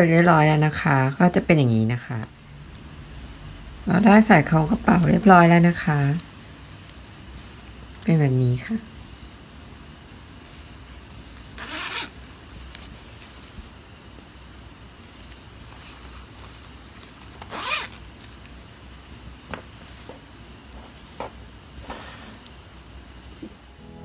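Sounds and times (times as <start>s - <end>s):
zipper being zipped: 11.6s - 12.2s, 17.4s - 18.0s.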